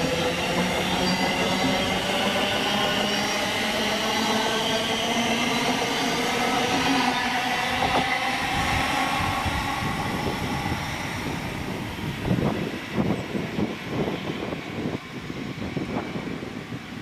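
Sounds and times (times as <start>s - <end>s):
train rail rumble: 0.0s - 17.0s.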